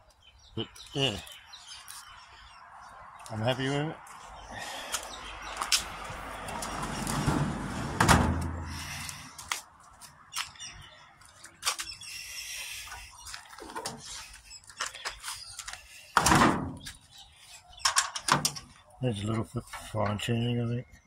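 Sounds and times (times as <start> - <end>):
heavy bump: 6.6 - 8.8
drawer scraping: 6.7 - 8.6.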